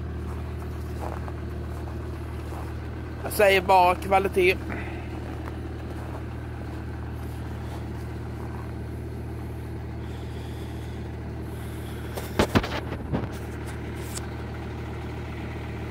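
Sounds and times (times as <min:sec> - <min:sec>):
diesel engine idling: 0:00.0 - 0:15.9
brief engine knocks: 0:12.0 - 0:14.3.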